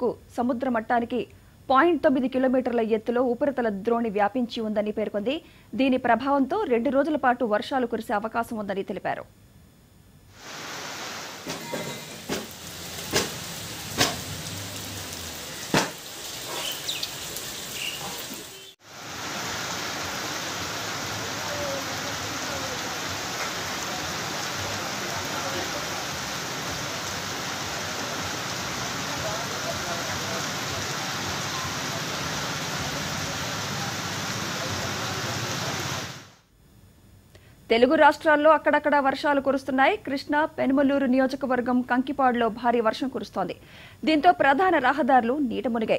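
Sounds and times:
heavy rain falling: 10.4 - 36.4.

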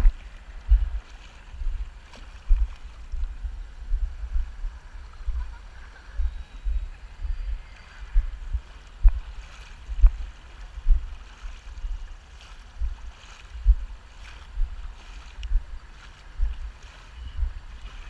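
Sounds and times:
low thumps on microphone: 0.0 - 1.0, 10.8 - 11.1, 13.6 - 13.9
water swishing: 0.0 - 18.0.

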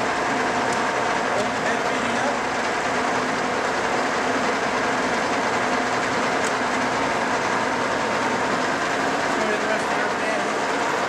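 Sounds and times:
milling machine drone: 0.0 - 11.0.

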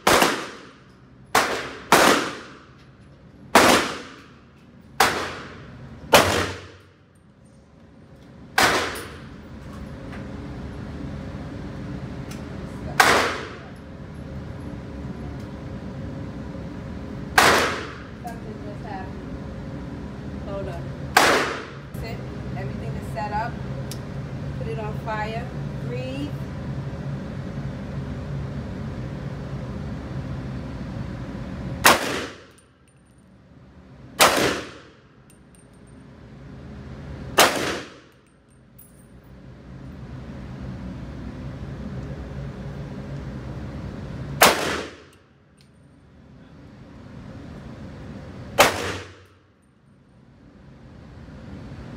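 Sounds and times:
rifle shot with echo: 0.0 - 0.8, 1.4 - 2.6, 31.8 - 32.4, 34.2 - 34.9, 37.4 - 38.1, 44.4 - 45.1, 48.6 - 49.3
rifle shots echoing indoors: 0.0 - 2.7, 3.5 - 4.4, 5.0 - 6.9, 8.5 - 9.3, 17.3 - 18.1, 21.1 - 21.8, 31.8 - 32.6, 34.2 - 35.0, 37.4 - 38.3, 44.4 - 45.2, 48.6 - 49.3.

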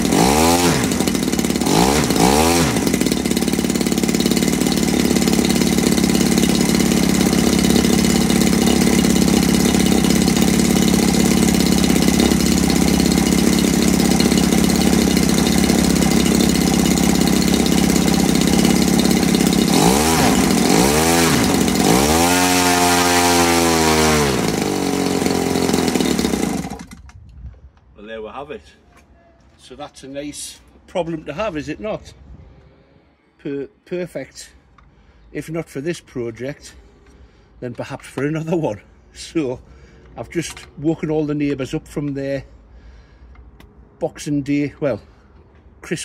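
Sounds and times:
model aircraft engine revving: 0.0 - 27.0.

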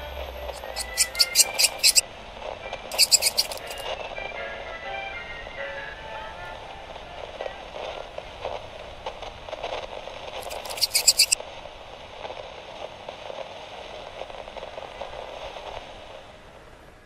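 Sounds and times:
rapid sharp clicks: 2.9 - 3.8.

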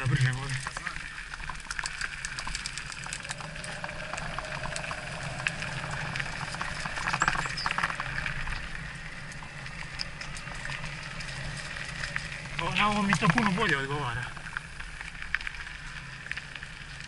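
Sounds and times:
tyres crackling over gravel: 0.0 - 17.0.

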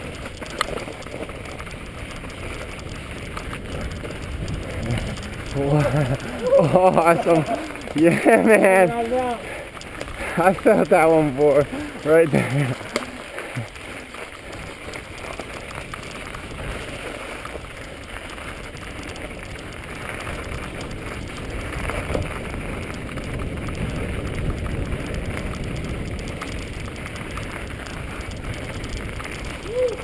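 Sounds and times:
bike tyres crunching on snow: 0.0 - 30.0
small rattles: 0.0 - 30.0
low rumble: 1.0 - 10.6.

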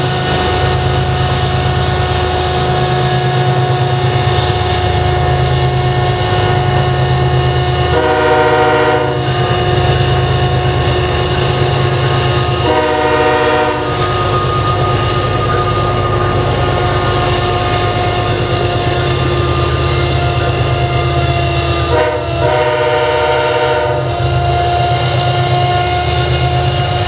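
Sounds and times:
diesel locomotive engine rumble: 0.0 - 27.0
high whine: 0.0 - 27.0
train horn blasts: 7.8 - 9.6, 12.5 - 18.2, 19.2 - 27.0.

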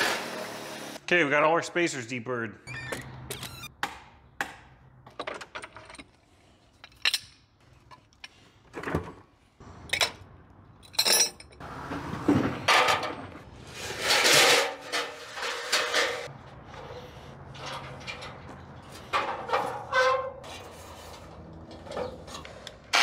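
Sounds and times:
metal parts and tools clinking: 5.1 - 8.4, 9.8 - 11.6, 14.0 - 23.0.

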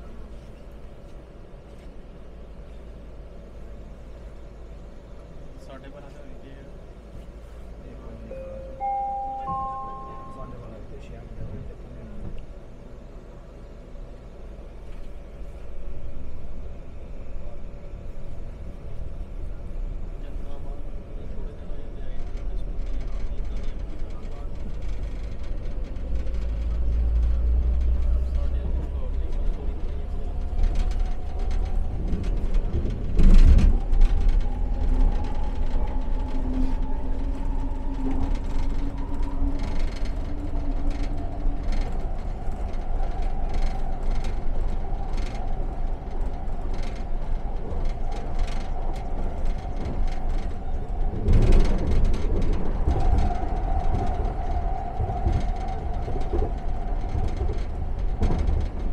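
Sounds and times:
train rumble with whining motor: 0.0 - 58.9
loud train clatters: 15.7 - 58.9.

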